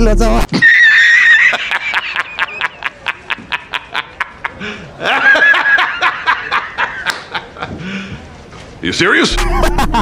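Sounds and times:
man laughing hard: 0:00.5 - 0:07.7, 0:09.3 - 0:10.0.

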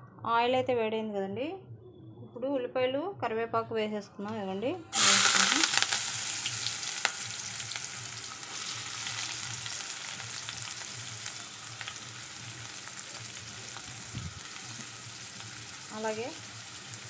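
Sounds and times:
onions sizzling in hot oil: 0:04.9 - 0:17.0.

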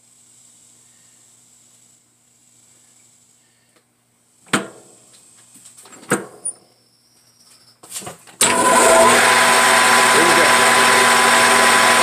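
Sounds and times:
metal lathe running: 0:08.4 - 0:12.0.

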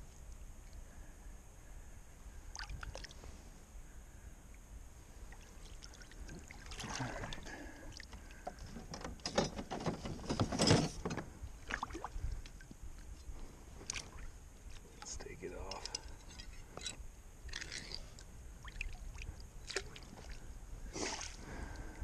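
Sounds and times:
water sloshing and splashing: 0:05.3 - 0:13.1, 0:13.8 - 0:16.9, 0:17.5 - 0:21.8.

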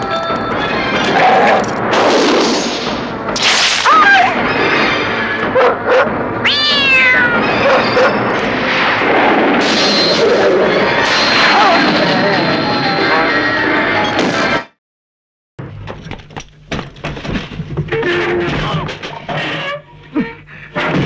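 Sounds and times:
cat screeching: 0:06.4 - 0:08.2.

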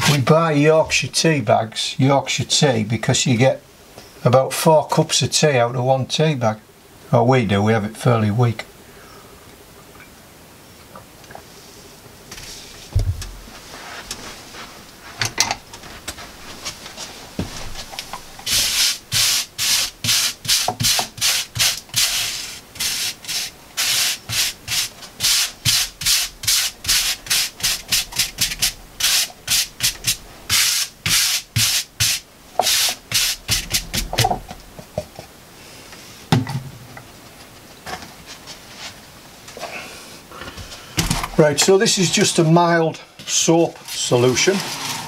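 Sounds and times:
hand brushing across tabletop: 0:11.6 - 0:15.2, 0:15.8 - 0:34.0, 0:38.2 - 0:39.1, 0:43.3 - 0:45.0.

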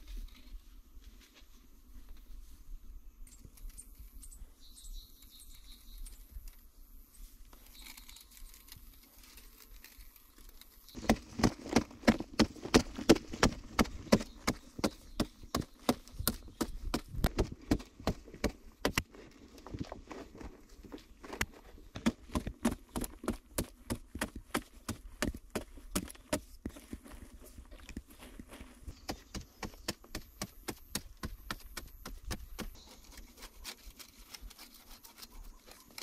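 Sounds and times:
hoe striking hard soil: 0:11.0 - 0:19.9, 0:21.3 - 0:27.2, 0:28.8 - 0:33.6
faint scuffling: 0:17.1 - 0:34.5.

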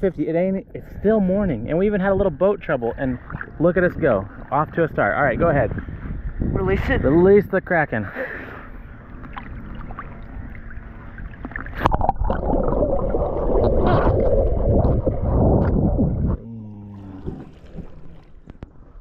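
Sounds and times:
muffled underwater rush and bubbling: 0:00.0 - 0:07.6, 0:08.2 - 0:19.0
low hum: 0:00.0 - 0:19.0
water sounds: 0:00.0 - 0:19.0.

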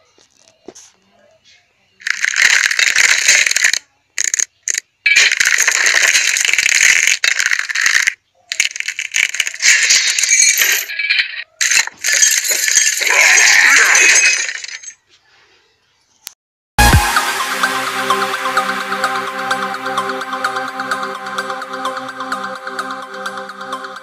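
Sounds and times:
skeleton bones rattling: 0:02.0 - 0:15.0.

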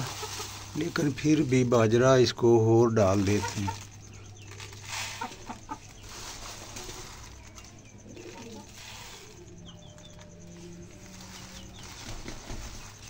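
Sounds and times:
pigeons cooing: 0:00.0 - 0:01.1, 0:03.1 - 0:13.0
high bird chirps: 0:02.8 - 0:13.0.

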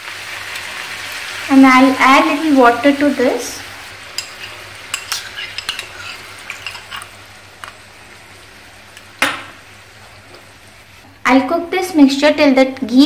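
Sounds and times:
gravy sizzling in a frying pan: 0:00.0 - 0:13.0
spoon clinking on bowl and pan: 0:04.1 - 0:07.1
utensil knocking on pan: 0:09.2 - 0:09.6.

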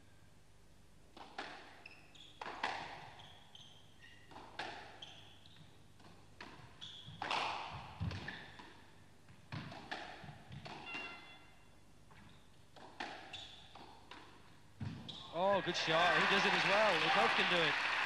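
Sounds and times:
shoes squeaking on floor: 0:01.8 - 0:04.3, 0:04.9 - 0:05.8, 0:06.6 - 0:07.4, 0:10.6 - 0:12.6, 0:13.2 - 0:13.7, 0:14.8 - 0:15.4.

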